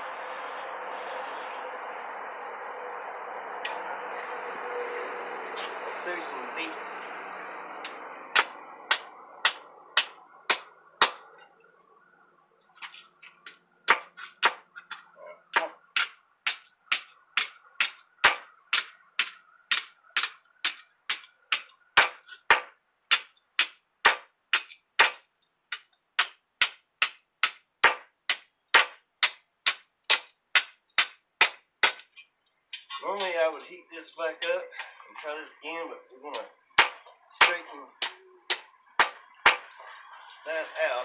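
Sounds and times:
hammer striking steel stake: 7.8 - 11.2, 13.4 - 33.4, 36.3 - 39.7.

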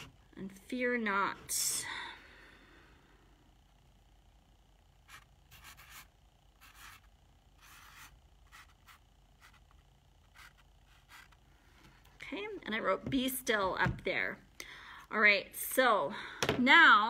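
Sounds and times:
felt-tip marker writing on paper: 5.1 - 9.6.

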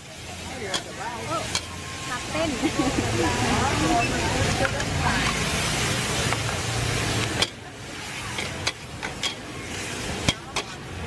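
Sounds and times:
food sizzling in a wok: 0.0 - 11.0
metal spatula clinking on wok: 0.7 - 1.7, 8.4 - 9.5.

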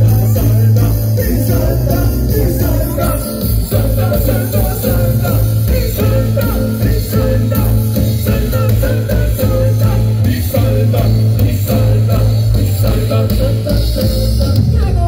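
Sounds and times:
live band playing amplified music: 0.0 - 15.0.

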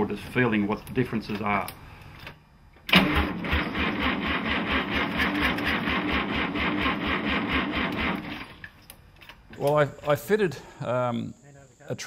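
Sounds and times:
starter motor cranking engine: 2.8 - 8.6.

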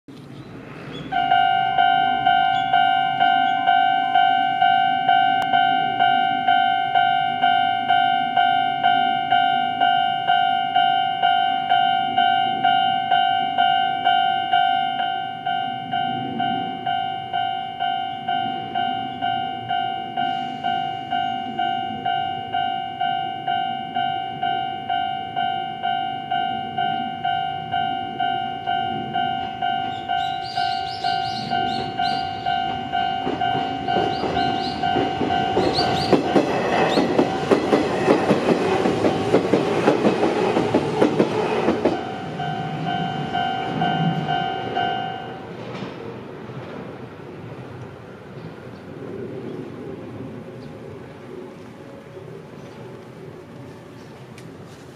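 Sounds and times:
train wheels clacking on rails: 0.9 - 46.9
level crossing bell ringing: 1.2 - 36.0, 42.0 - 45.5.

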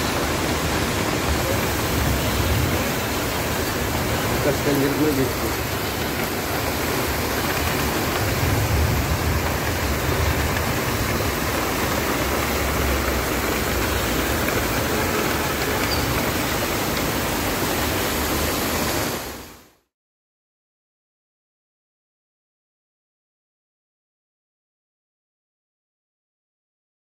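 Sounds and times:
floodwater rushing over street: 0.0 - 19.7
heavy rain: 0.0 - 19.8.

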